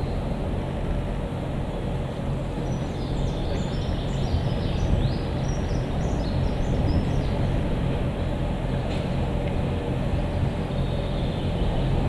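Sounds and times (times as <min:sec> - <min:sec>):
diesel locomotive engine drone: 0:00.0 - 0:12.0
birds chirping: 0:01.7 - 0:07.6.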